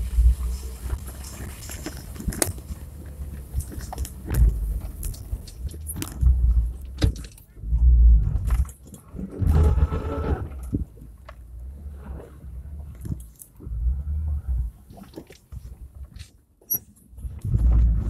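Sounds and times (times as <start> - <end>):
car engine and tyres rumbling: 0.0 - 18.0
car knocks and rattles: 0.5 - 11.6.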